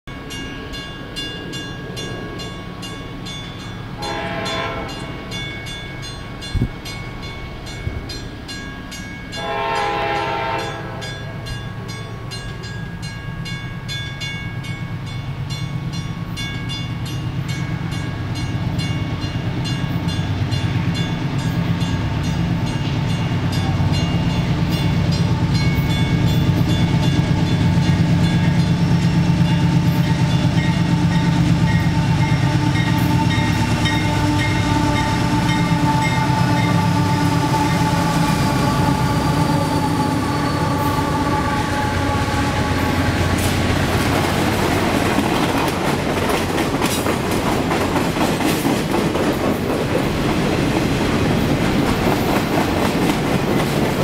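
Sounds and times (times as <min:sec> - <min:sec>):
train horn blasts: 0:04.0 - 0:05.3, 0:09.3 - 0:11.5, 0:29.6 - 0:43.6
locomotive rumble: 0:15.0 - 0:54.0.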